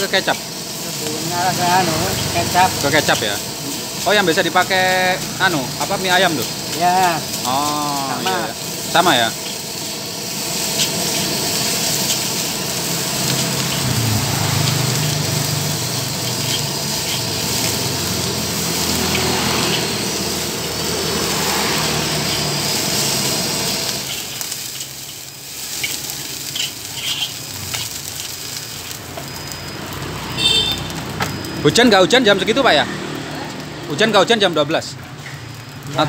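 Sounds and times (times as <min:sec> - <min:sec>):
rice sizzling in a wok: 0:00.0 - 0:36.0
metal spatula scraping a wok: 0:09.3 - 0:17.8, 0:18.6 - 0:20.4, 0:21.3 - 0:29.0.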